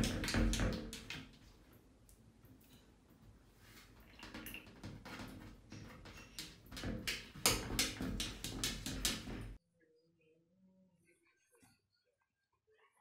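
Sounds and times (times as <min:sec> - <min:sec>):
cat tapping on glass door: 0:04.7 - 0:09.6.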